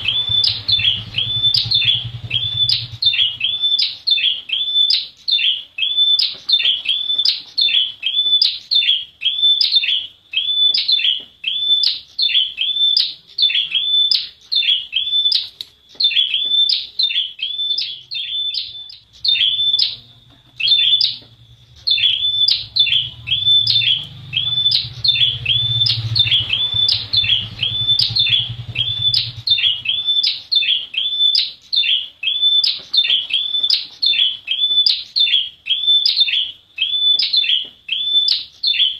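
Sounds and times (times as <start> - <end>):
faint low rumble: 0.0 - 3.7, 17.9 - 30.2
bird chirping sharply: 0.0 - 38.9.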